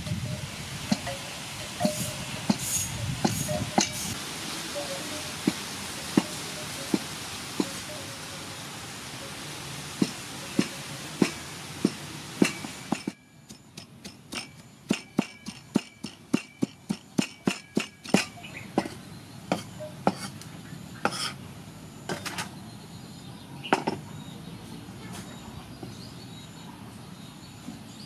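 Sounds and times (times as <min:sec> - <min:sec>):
cleaver chopping on wooden block: 0:10.0 - 0:20.4, 0:21.1 - 0:21.4.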